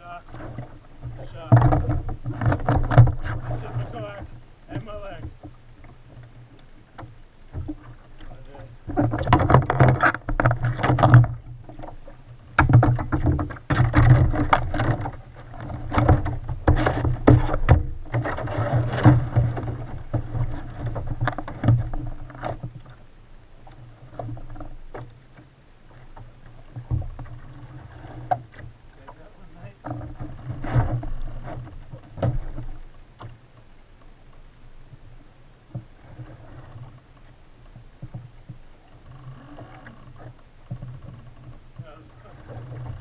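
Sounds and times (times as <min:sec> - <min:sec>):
water slapping against kayak hull: 0:00.0 - 0:43.0
knocks on kayak hull: 0:01.3 - 0:03.4, 0:12.6 - 0:22.7.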